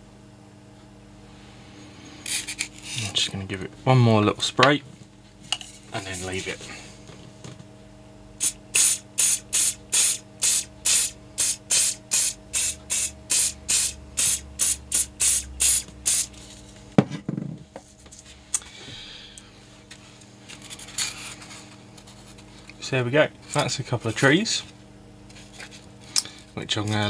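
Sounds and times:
aerosol spray hisses: 8.4s - 16.3s
knock: 17.0s - 17.6s.

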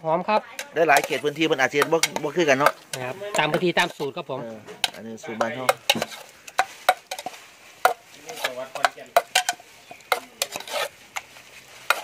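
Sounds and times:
broth boiling: 0.0s - 12.0s
metal spoon scraping a pot: 0.6s - 4.1s, 4.7s - 12.0s.

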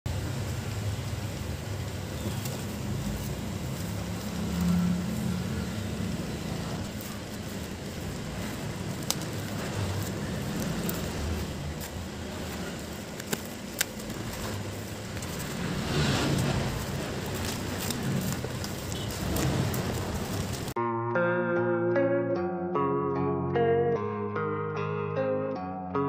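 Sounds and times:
steady low rumble: 0.1s - 20.8s
plastic packaging rustling: 2.2s - 5.5s, 6.2s - 20.8s
scissors snipping: 8.4s - 15.5s.

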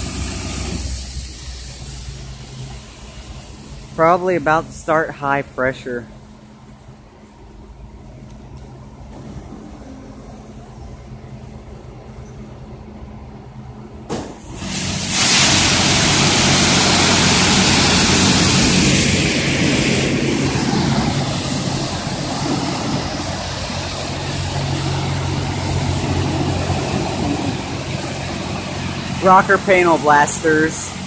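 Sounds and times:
high-pressure water spray hissing: 0.0s - 4.6s, 14.4s - 31.0s
car wash motor humming: 0.0s - 31.0s.

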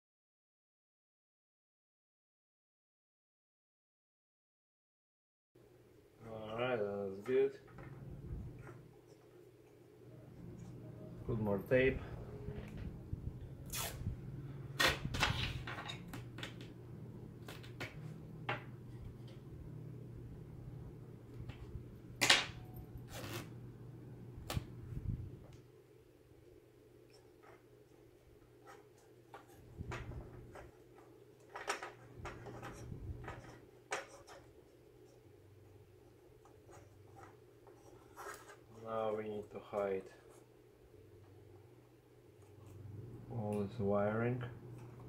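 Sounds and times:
steady low hum: 5.6s - 45.0s
tape pulled and torn: 13.6s - 14.1s, 23.1s - 23.5s.

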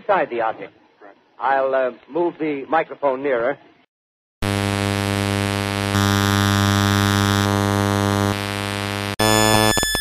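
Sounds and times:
rasping electronic hum: 4.4s - 10.0s.

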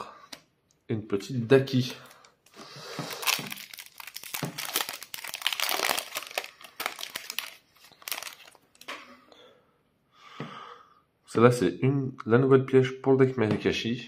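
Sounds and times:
foil wrapper crinkling and tearing: 1.8s - 8.8s.

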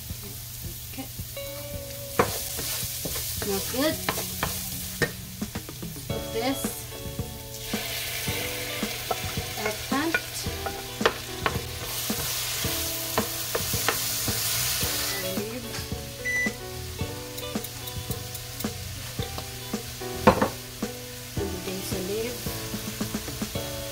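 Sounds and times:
food sizzling in a frying pan: 0.0s - 23.9s
wooden spatula scraping pan: 2.2s - 4.7s.

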